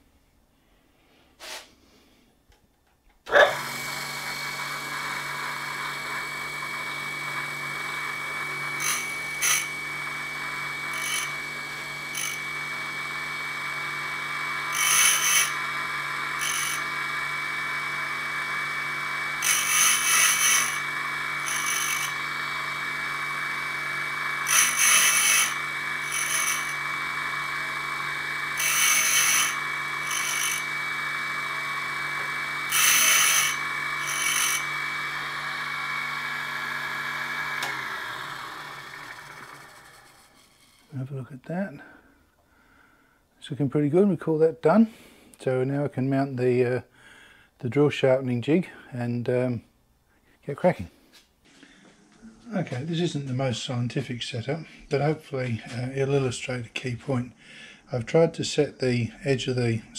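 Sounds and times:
diamond scraping grinding wheel: 3.3 - 41.1
grinder motor high whine: 3.3 - 41.2.

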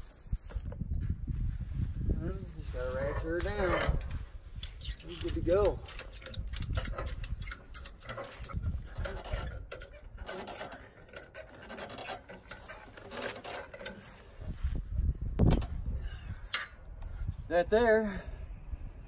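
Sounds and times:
metal ratchet clicking: 4.6 - 12.9.

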